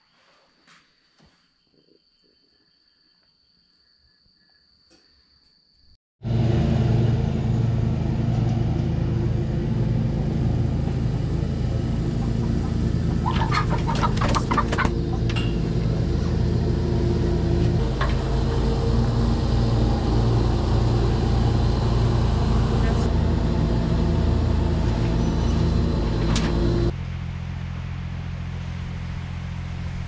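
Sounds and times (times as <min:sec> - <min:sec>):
engine running steadily: 0:06.2 - 0:30.0.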